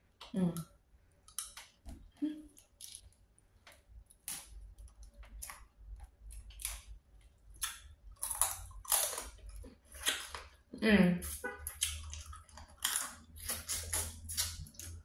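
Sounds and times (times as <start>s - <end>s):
crab shell cracking: 1.2s - 1.8s
chewing: 11.3s - 15.0s.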